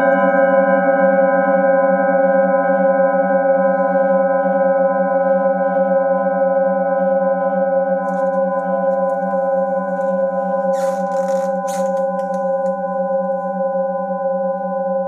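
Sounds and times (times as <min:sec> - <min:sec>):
brief rustle: 0:08.1 - 0:12.7.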